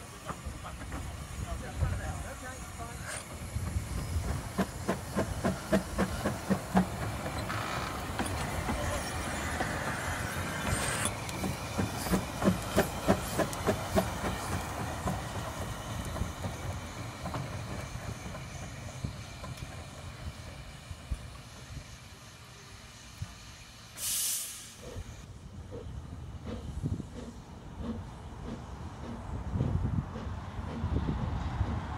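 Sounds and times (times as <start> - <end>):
steam hissing: 0.0 - 25.2
steam locomotive chuffing: 0.0 - 31.9.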